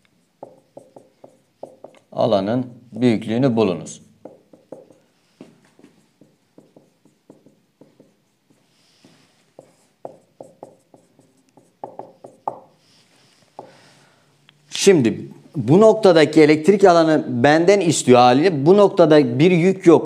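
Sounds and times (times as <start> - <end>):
marker squeaking on whiteboard: 0.1 - 2.2, 4.2 - 13.7.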